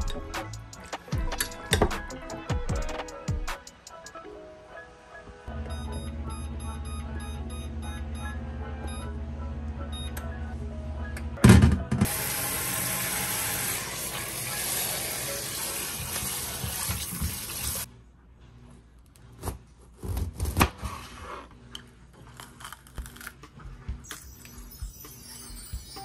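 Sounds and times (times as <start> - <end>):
faucet running into bowl: 12.1 - 17.9.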